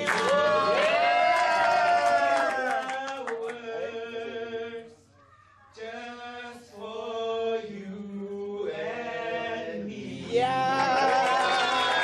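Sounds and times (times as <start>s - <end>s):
two men singing unaccompanied: 2.6s - 5.0s, 5.8s - 12.0s.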